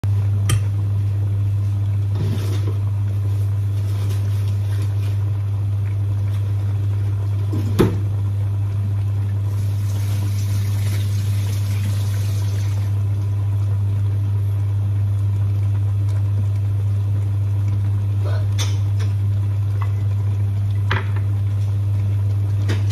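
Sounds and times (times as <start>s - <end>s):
steady low hum: 0.0s - 22.9s
kitchen tap running: 9.5s - 12.9s.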